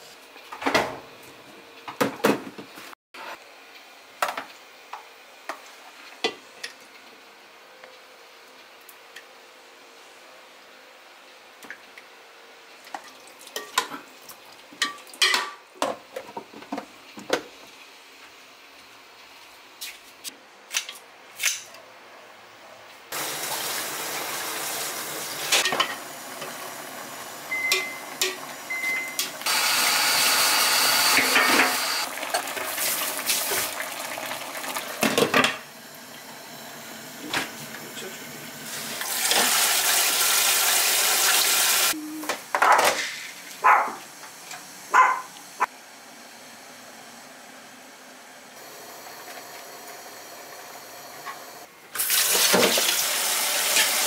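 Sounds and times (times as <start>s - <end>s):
gas burner hissing: 23.1s - 33.6s
tap water rushing: 31.0s - 36.4s, 38.8s - 41.9s, 52.0s - 54.0s.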